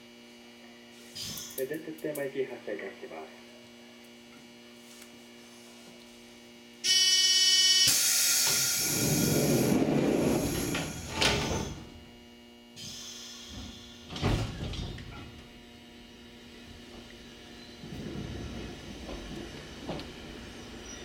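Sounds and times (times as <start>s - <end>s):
buzzer: 6.8s - 8.0s
train doors hissing shut: 7.8s - 12.0s, 12.8s - 15.2s.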